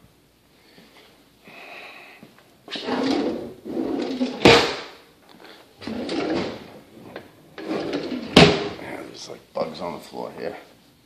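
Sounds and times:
wooden drawer sliding: 2.7s - 4.8s, 5.8s - 8.9s
drawer knocking shut: 4.0s - 4.9s, 7.8s - 8.8s.

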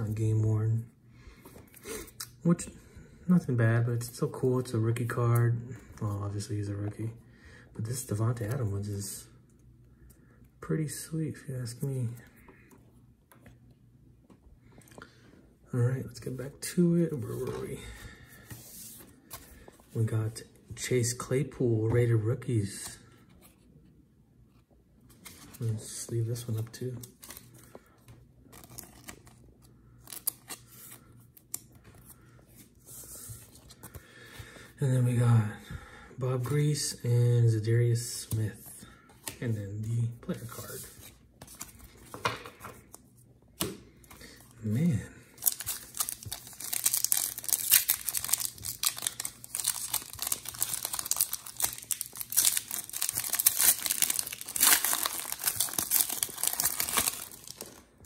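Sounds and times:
foil wrapper crinkling and tearing: 45.4s - 57.9s.

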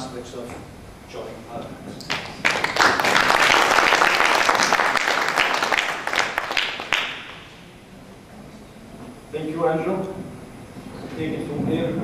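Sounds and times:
audience applauding: 2.1s - 7.7s.

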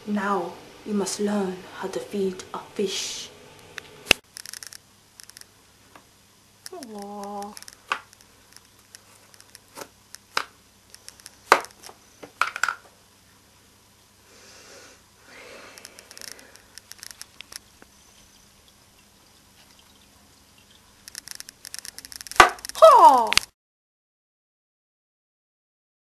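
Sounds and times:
soft water sounds: 17.3s - 21.7s.

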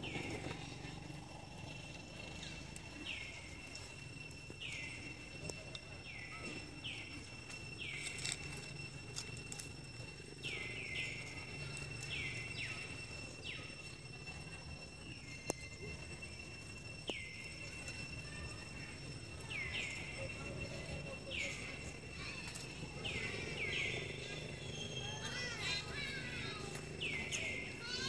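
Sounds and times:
rustling in dry leaves: 6.0s - 28.0s.

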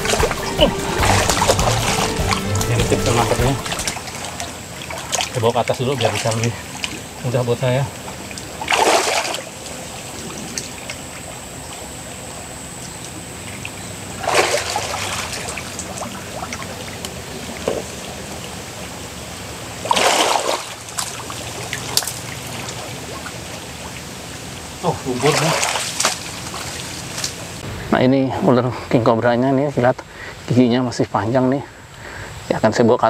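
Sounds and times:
water splashing: 0.0s - 11.9s, 13.4s - 18.9s, 19.7s - 27.6s
stream water trickling: 0.0s - 27.6s.

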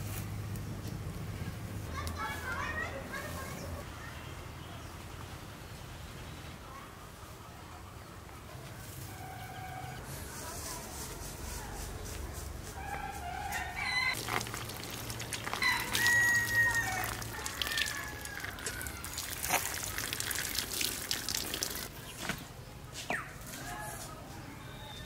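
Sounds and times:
chicken calls: 12.7s - 19.8s
rooster crowing: 12.8s - 14.5s, 15.4s - 19.2s.

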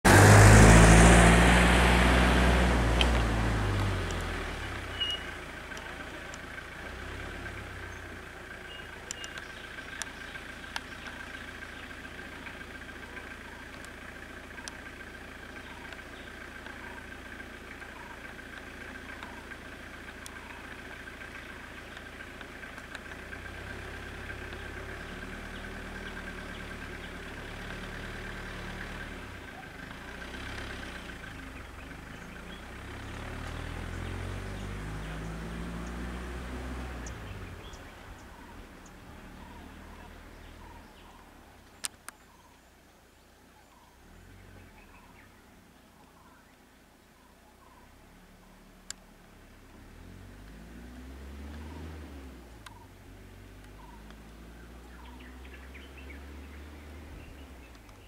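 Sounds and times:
car engines idling: 0.0s - 58.0s
small clicks: 9.0s - 11.2s, 13.6s - 14.0s, 41.6s - 42.3s, 57.6s - 58.0s.

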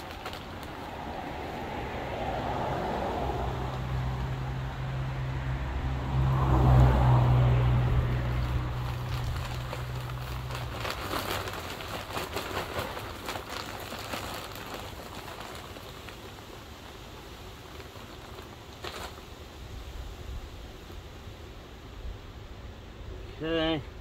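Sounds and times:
plastic bag crinkling: 0.0s - 1.2s, 8.3s - 19.4s
soil pouring into fabric pot: 0.0s - 4.1s, 7.9s - 19.5s
passing car rumble: 0.0s - 16.2s.

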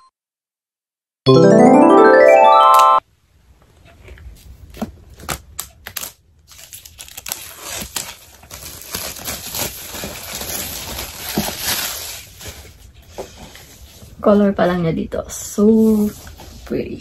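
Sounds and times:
plastic wrapping tearing and crinkling: 4.6s - 12.9s.

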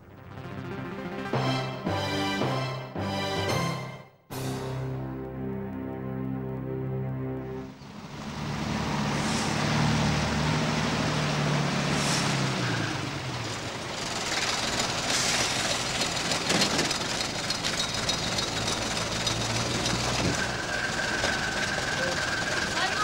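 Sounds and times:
vehicle engine droning: 4.9s - 23.0s
rushing hiss: 9.0s - 10.1s.

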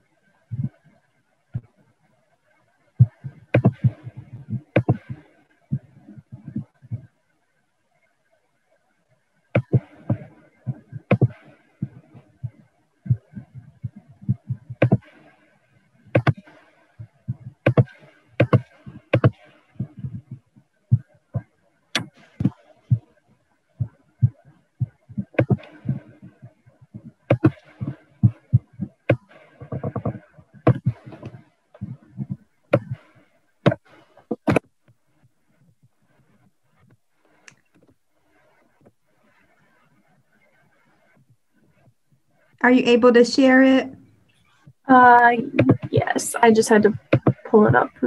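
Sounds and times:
heavier thumps: 26.9s - 33.0s.

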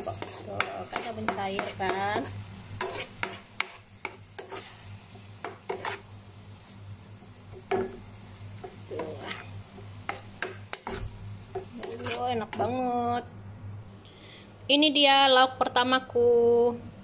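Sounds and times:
metal spatula scraping a wok: 0.0s - 6.1s, 8.7s - 12.7s
vegetables sizzling: 0.0s - 13.9s.

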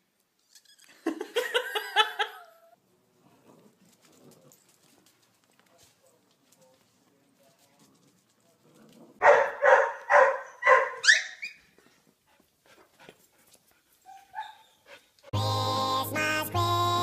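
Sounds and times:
dog barking: 9.2s - 11.5s, 14.1s - 14.7s
dog yelping: 9.2s - 11.7s, 14.0s - 14.8s.

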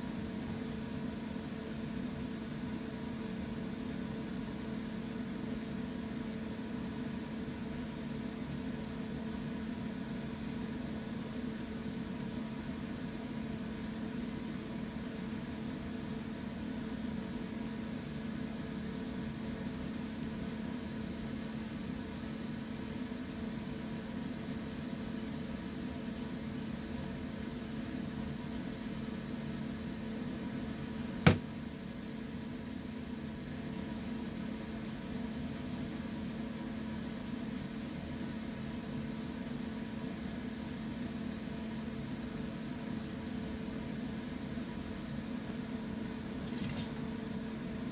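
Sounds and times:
appliance electric hum: 0.0s - 47.9s.

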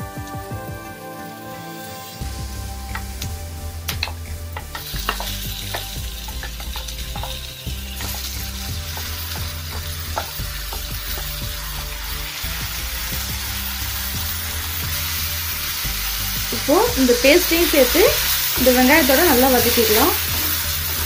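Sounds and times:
onions sizzling in hot oil: 0.0s - 21.0s
sharp clicks and taps: 2.9s - 11.4s.

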